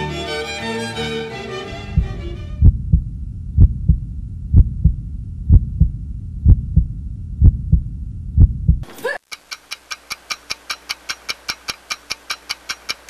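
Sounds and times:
string music: 0.0s - 2.7s
steady low rumble: 1.7s - 8.8s
heartbeat thumps: 1.8s - 8.8s.

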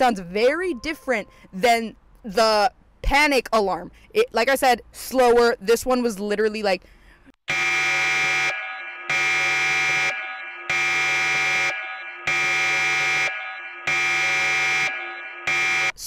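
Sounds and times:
alarm siren pulses: 7.5s - 16.0s.

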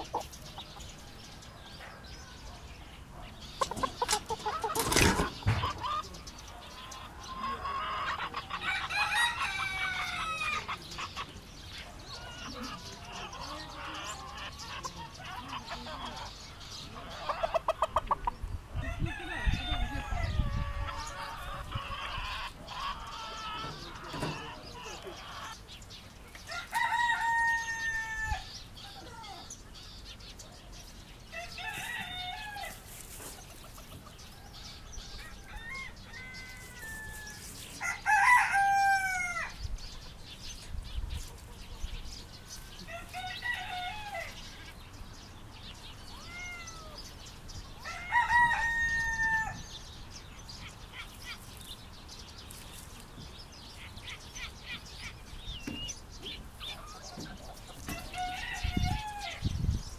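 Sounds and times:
rooster crowing: 8.6s - 10.7s, 26.5s - 28.5s, 34.4s - 39.6s, 42.8s - 44.4s, 47.8s - 49.7s, 57.9s - 59.5s
hens calling softly: 45.9s - 47.2s.

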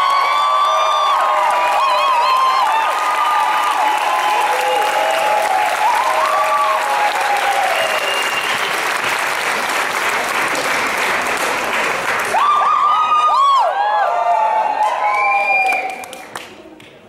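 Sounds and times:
people cheering and whooping: 0.0s - 9.1s, 12.3s - 16.2s
audience applauding: 0.0s - 16.9s.

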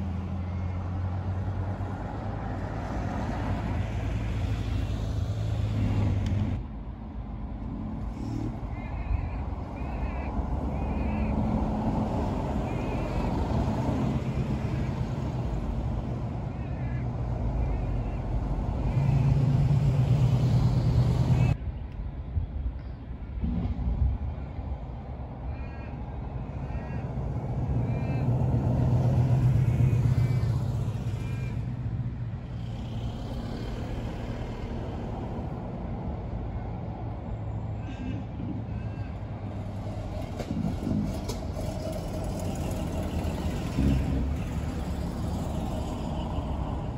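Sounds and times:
cars driving past: 0.0s - 21.6s, 23.3s - 46.9s
wavering bird calls: 8.7s - 11.5s.

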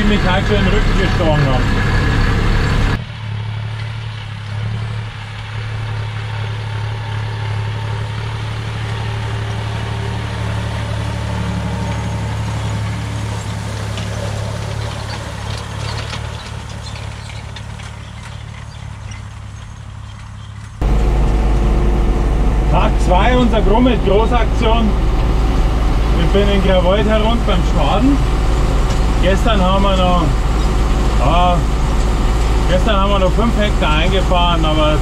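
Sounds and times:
deep engine drone: 0.0s - 35.0s
tractor engine running: 0.0s - 35.0s
hay rake clattering: 7.5s - 21.6s, 22.7s - 35.0s.

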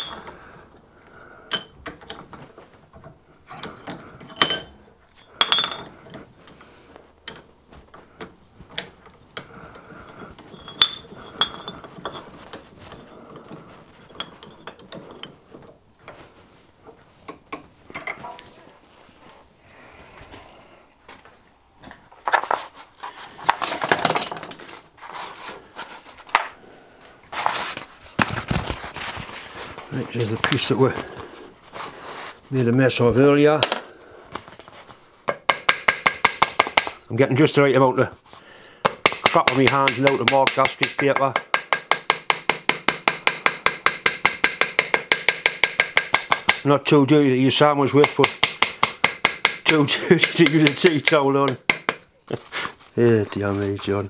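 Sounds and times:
metal clinks and knocks: 0.0s - 0.4s, 1.4s - 7.6s, 8.2s - 16.2s, 16.9s - 18.4s.

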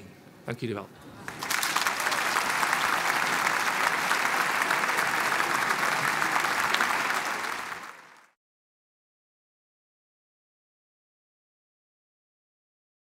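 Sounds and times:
audience applauding: 1.0s - 8.4s.

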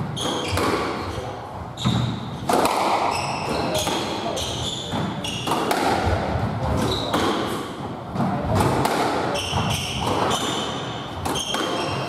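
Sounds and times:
squash ball hitting rackets and walls: 0.0s - 12.0s
shoes squeaking on wooden floor: 0.1s - 2.5s, 3.1s - 5.5s, 9.3s - 12.0s.

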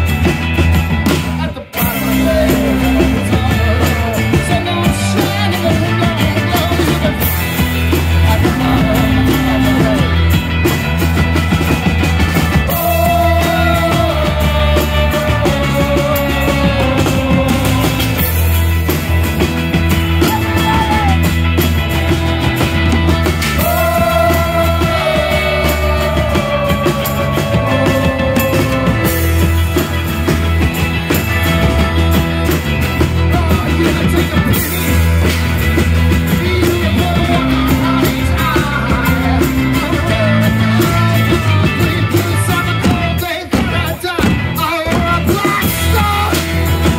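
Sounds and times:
acoustic and electric guitars: 0.0s - 46.9s
drum kit: 0.0s - 46.9s
person singing: 1.4s - 7.3s, 8.2s - 10.3s, 12.7s - 18.4s, 23.6s - 29.4s.

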